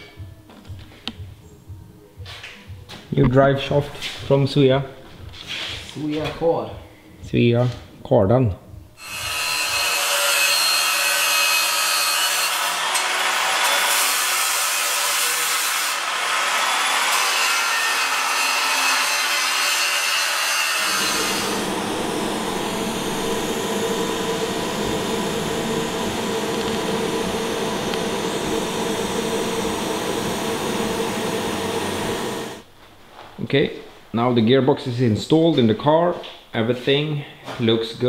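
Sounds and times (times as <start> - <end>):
welding buzzing hum: 9.0 - 32.7.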